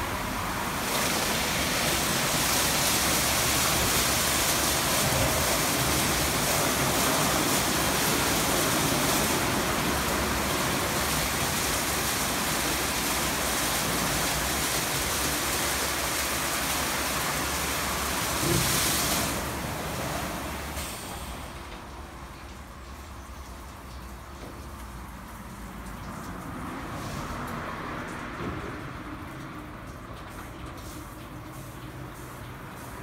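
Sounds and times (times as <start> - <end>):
car wash brushes scrubbing: 0.0 - 20.5.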